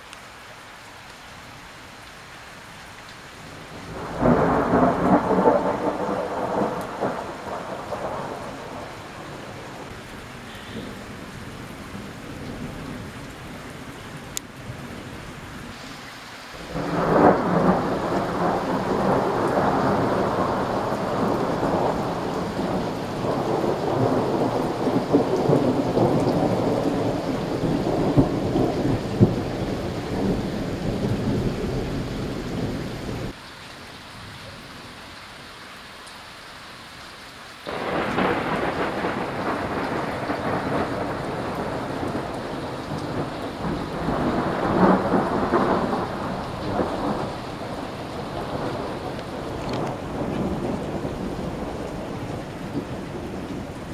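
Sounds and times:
rain hiss: 0.0s - 53.9s
thunder rumbling: 3.9s - 11.3s, 16.6s - 33.4s, 37.7s - 53.9s.

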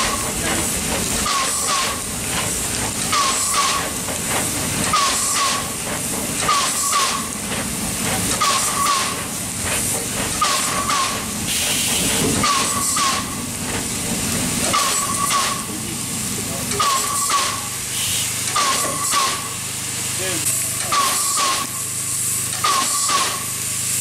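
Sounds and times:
steam hiss: 0.0s - 24.0s
steam locomotive exhaust beats: 0.0s - 24.0s.

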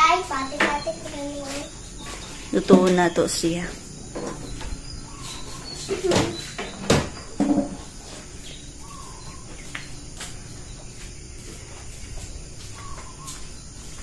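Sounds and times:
bird chirping: 0.0s - 14.0s.

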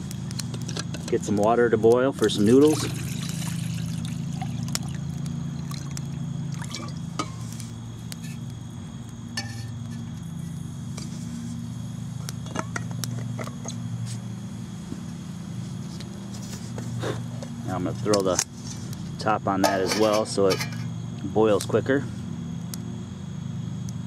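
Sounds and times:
wood fire crackling: 0.0s - 23.1s
steady low hum: 0.0s - 24.0s
water pouring into a pot: 2.3s - 7.0s.

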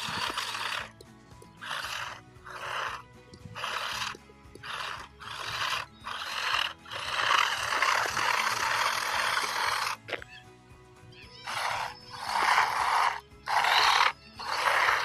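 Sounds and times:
electric rc truck motor: 0.0s - 0.9s, 1.6s - 10.2s, 11.4s - 15.0s
background music: 0.0s - 15.0s.

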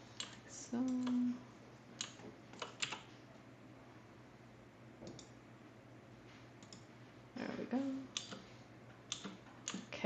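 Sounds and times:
computer mouse clicks: 0.2s - 1.2s, 2.0s - 3.1s, 5.0s - 5.4s, 6.6s - 6.9s, 8.1s - 8.5s, 9.1s - 9.9s.

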